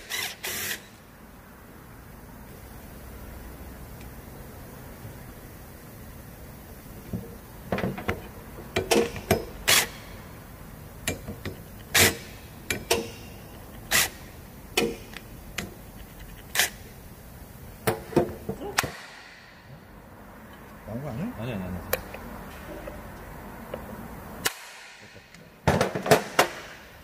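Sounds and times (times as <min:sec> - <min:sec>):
metallic clicks and knocks of tools: 0:12.7 - 0:13.9.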